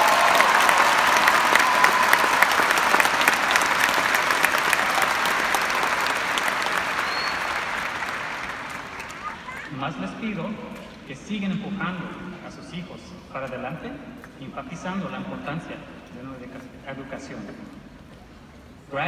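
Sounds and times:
crowd applauding: 0.0s - 9.8s
high whistle: 6.9s - 7.8s.

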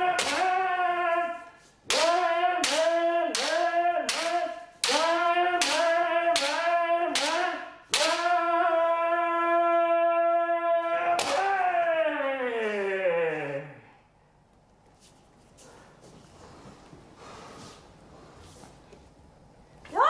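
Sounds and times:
bamboo sword strikes: 0.0s - 0.6s, 1.8s - 8.4s
high sustained shout: 4.9s - 14.0s.

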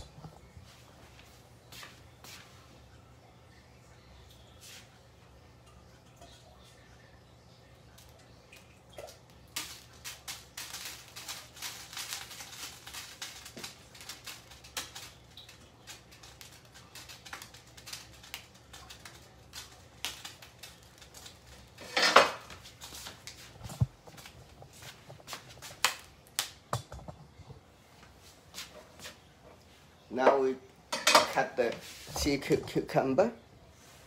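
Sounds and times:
clattering scrape: 21.8s - 22.4s
dishes and utensils clinking: 21.8s - 22.6s, 30.2s - 31.6s.

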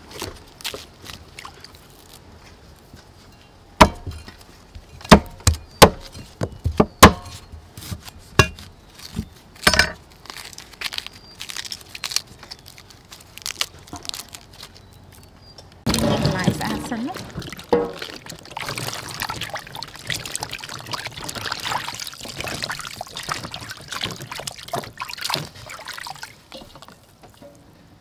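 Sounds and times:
corn husks snapping and tearing: 0.0s - 2.9s, 7.2s - 16.0s
sharp knocks and cracks: 3.8s - 4.4s, 5.0s - 7.4s, 8.4s - 10.0s
husks rustling and crackling: 7.4s - 27.4s.

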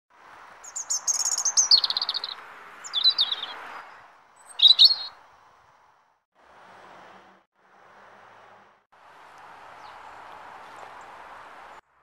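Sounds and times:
songbird singing: 0.6s - 5.3s, 9.8s - 11.2s.

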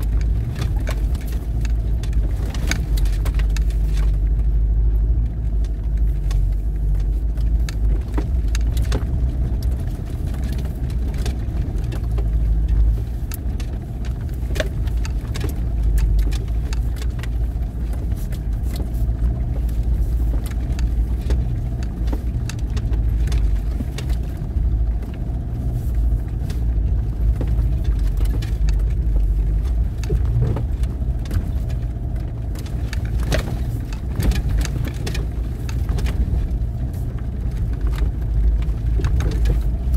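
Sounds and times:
clicks and rattles: 0.0s - 39.9s
low engine rumble: 0.0s - 39.9s.

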